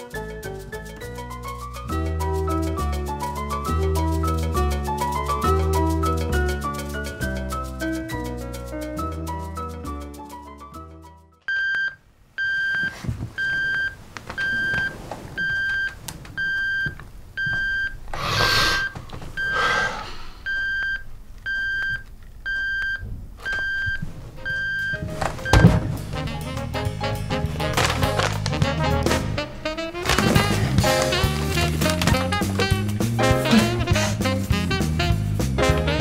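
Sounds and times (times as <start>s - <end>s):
bedding rustling: 12.5s - 19.7s, 20.7s - 34.4s
alarm clock beeping: 18.8s - 19.7s, 20.5s - 25.8s
thump: 25.4s - 26.1s.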